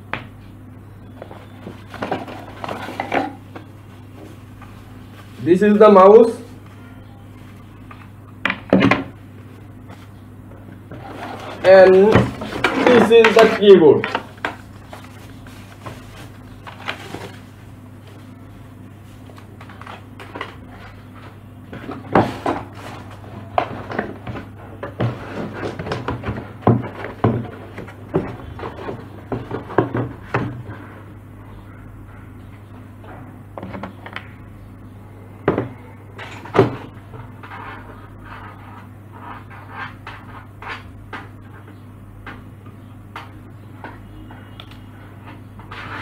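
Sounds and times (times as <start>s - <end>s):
steady low hum: 0.0s - 46.0s
cardboard and plastic knocks and rustles: 1.3s - 3.7s, 11.0s - 17.5s, 21.8s - 30.7s.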